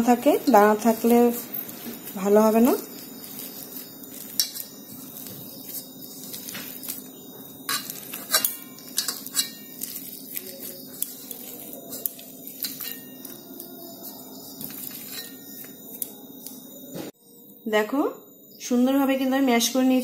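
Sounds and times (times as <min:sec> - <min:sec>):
potatoes being mashed in bowl: 0:00.0 - 0:16.6.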